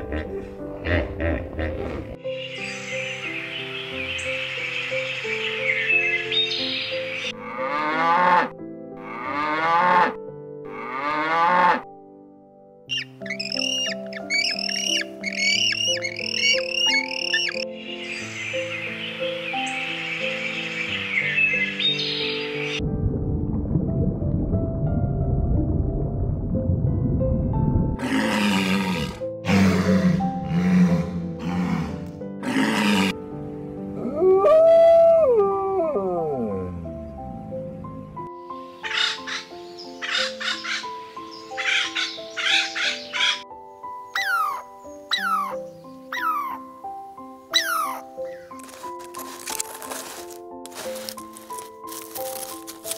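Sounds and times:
background music: 0.0 - 52.9
penguins calling rapidly: 12.9 - 17.6.

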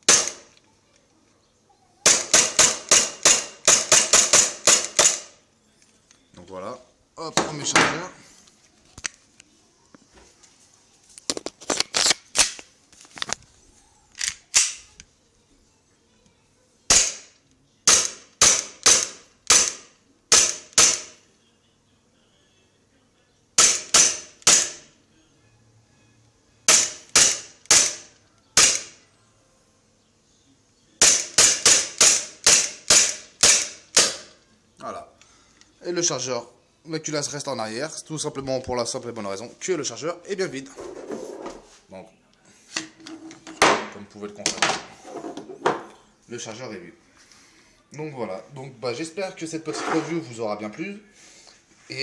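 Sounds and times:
airsoft pistol shots: 0.0 - 0.5, 2.1 - 5.3, 16.9 - 17.3, 17.9 - 21.2, 23.6 - 24.9, 26.7 - 29.0, 31.0 - 34.3.

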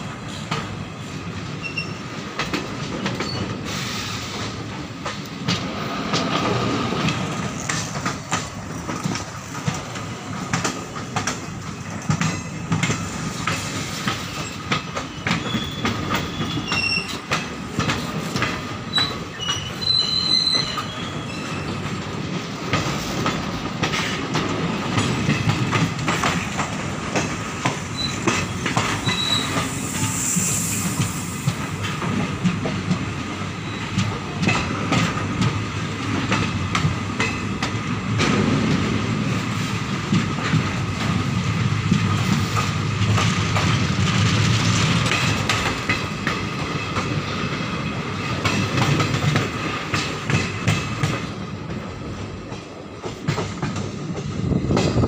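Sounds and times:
train wheels clattering over rail joints: 0.2 - 55.0
high wheel squeals: 1.6 - 2.0, 14.4 - 17.2, 18.9 - 21.8, 28.0 - 31.1.

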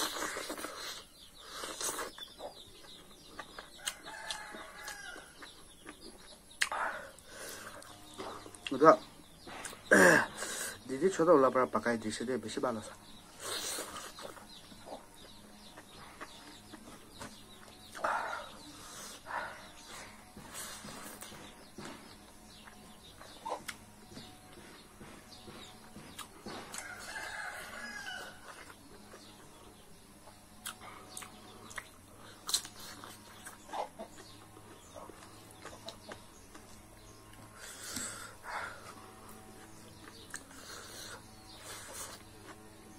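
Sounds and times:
soft chewing: 0.0 - 8.8, 12.9 - 38.2, 38.8 - 42.9
mouth clicks: 5.9 - 7.9.

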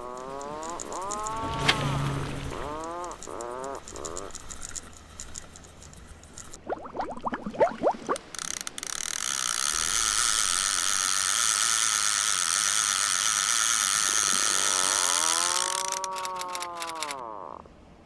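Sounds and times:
fishing reel ratchet buzzing: 0.0 - 1.7, 2.4 - 6.6, 8.1 - 17.4
rising zips: 0.0 - 4.3.

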